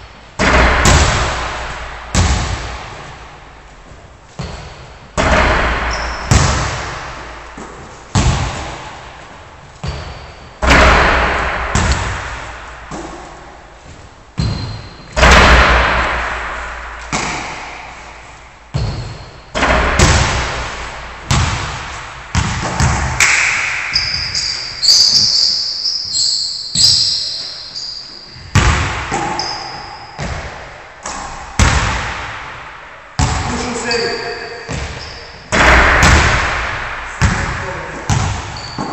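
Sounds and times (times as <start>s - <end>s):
basketball hitting hoop: 0.4s - 3.6s, 4.4s - 9.2s, 9.8s - 13.8s, 14.4s - 25.4s, 28.4s - 38.9s
basketball thudding on wooden floor: 21.3s - 23.2s, 34.7s - 36.5s.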